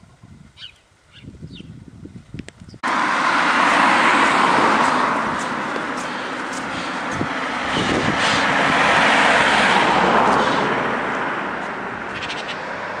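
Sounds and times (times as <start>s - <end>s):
car driving past: 2.8s - 13.0s.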